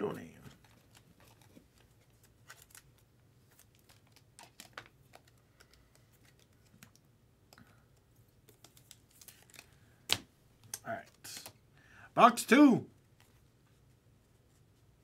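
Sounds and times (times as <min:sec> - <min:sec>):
small plastic clicks and rustles: 0:00.4 - 0:09.7.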